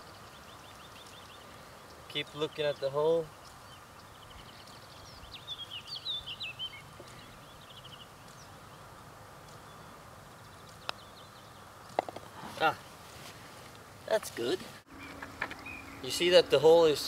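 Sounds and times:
songbird chirping: 0.0 - 17.0
putter striking golf ball: 12.0 - 12.3.

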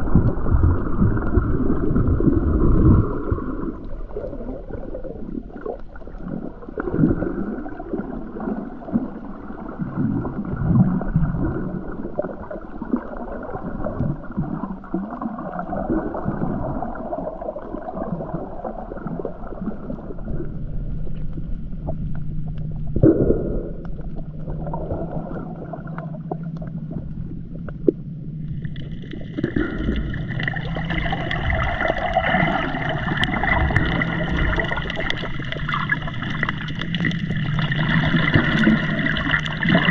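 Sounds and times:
low steady hum: 0.0 - 39.9
muffled water sloshing underwater: 0.0 - 39.9
water splashing: 23.8 - 39.9.

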